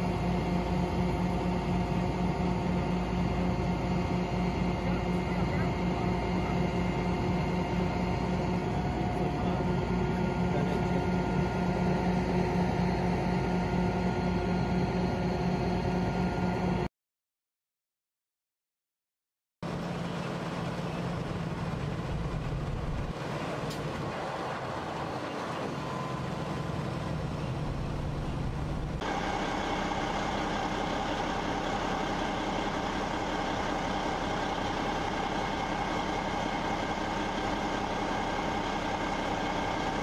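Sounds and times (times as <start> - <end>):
engine with high whine: 0.0 - 16.9, 19.6 - 40.0
heavy trucks idling: 19.7 - 40.0.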